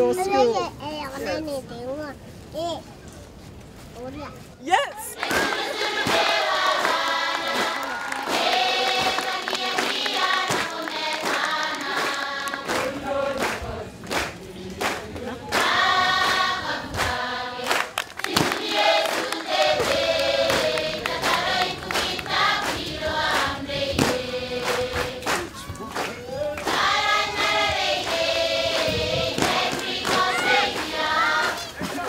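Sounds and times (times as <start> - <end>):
choir singing: 5.1 - 25.4, 26.6 - 32.0.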